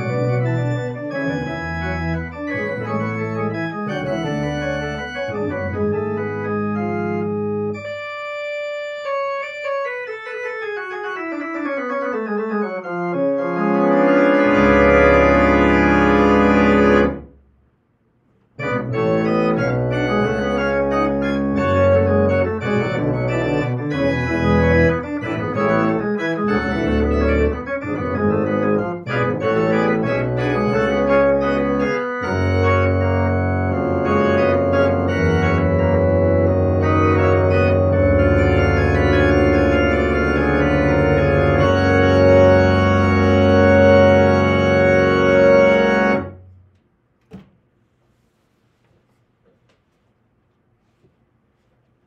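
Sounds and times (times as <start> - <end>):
electronic organ playing: 0.0 - 17.4, 18.6 - 46.5
faint knock: 46.7 - 47.7.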